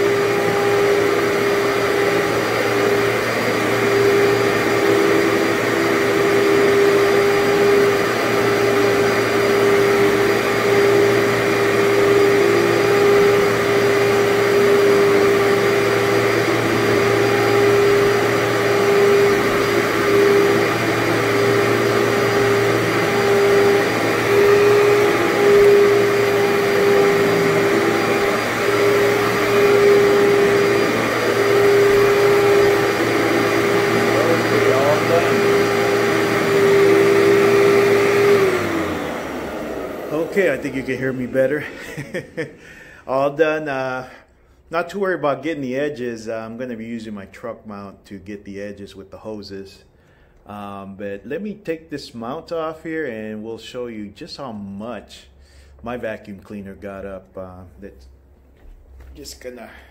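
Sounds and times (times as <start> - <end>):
upright vacuum cleaner running: 0.0 - 44.2.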